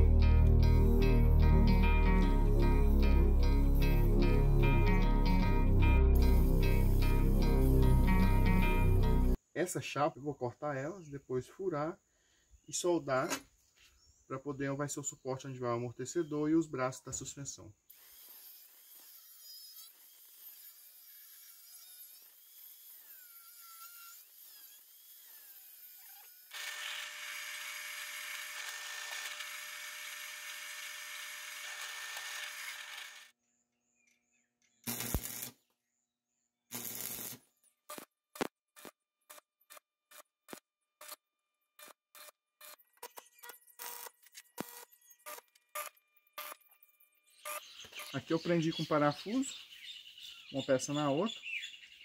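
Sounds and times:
angle grinder cutting steel: 0:17.9 - 0:33.4, 0:34.9 - 0:35.6, 0:36.7 - 0:38.1
stick welder arcing: 0:17.9 - 0:33.4, 0:34.8 - 0:35.6, 0:36.7 - 0:41.2, 0:41.8 - 0:46.8
drill press boring steel: 0:24.2 - 0:33.3.

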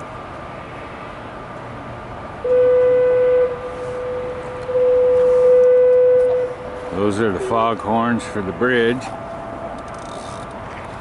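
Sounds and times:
foghorn blasts: 0:02.4 - 0:07.1.

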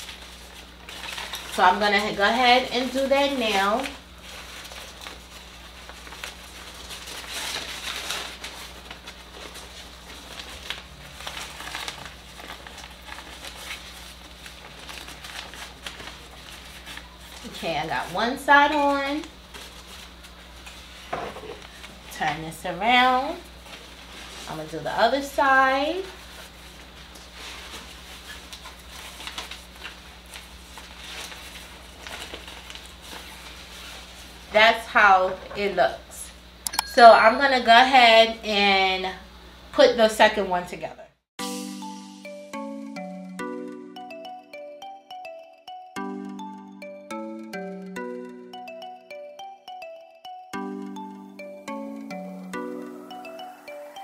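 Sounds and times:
fabric rustling and crinkling: 0:00.0 - 0:22.0, 0:25.4 - 0:34.6
low steady hum: 0:00.0 - 0:41.0.

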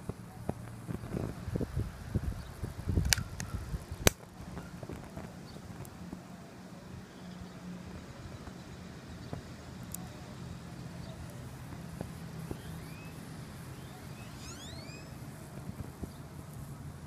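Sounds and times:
chip crackling in flame: 0:00.0 - 0:06.4, 0:07.8 - 0:17.0
high arching chirps: 0:06.6 - 0:16.9.

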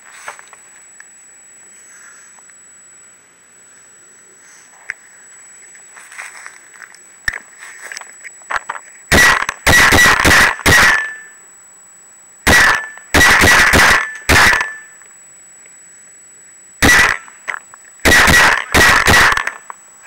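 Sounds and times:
paintball gun shots: 0:09.1 - 0:11.3, 0:12.5 - 0:14.9, 0:16.8 - 0:19.7.

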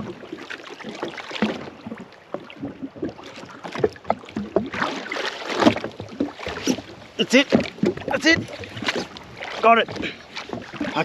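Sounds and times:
water lapping against hull: 0:00.0 - 0:11.0.

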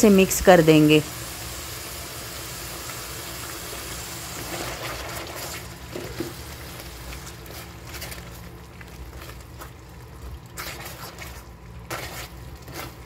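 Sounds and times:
sauce sizzling in a frying pan: 0:00.0 - 0:07.8
spatula stirring: 0:04.4 - 0:13.0.

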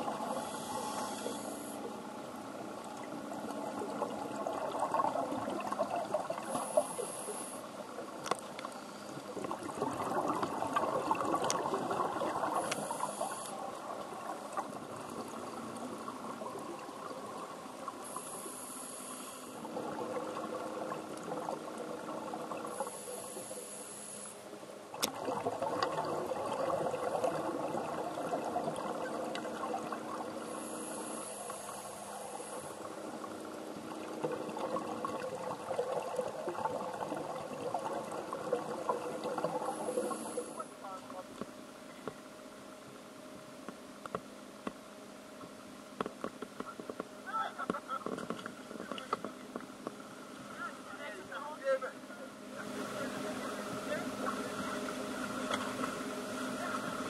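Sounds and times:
exhaled bubbles gurgling: 0:00.0 - 0:18.7, 0:19.6 - 0:23.6, 0:24.8 - 0:40.8.

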